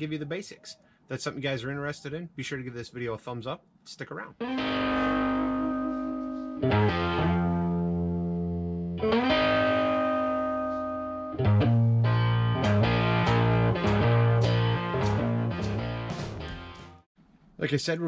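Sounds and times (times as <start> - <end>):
held guitar chords: 4.4 - 17.1.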